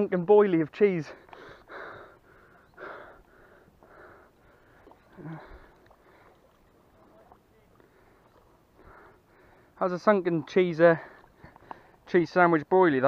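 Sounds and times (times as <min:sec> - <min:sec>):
person breathing heavily: 0:01.1 - 0:06.6, 0:07.8 - 0:09.8.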